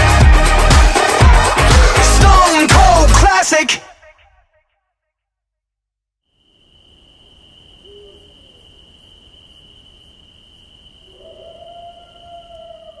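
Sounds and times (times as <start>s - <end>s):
cricket trill: 6.3s - 13.0s.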